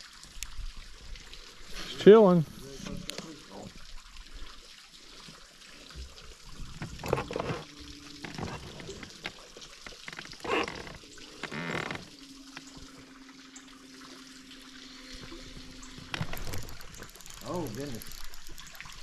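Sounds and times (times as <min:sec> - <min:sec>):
water lapping and trickling: 0:00.0 - 0:19.0.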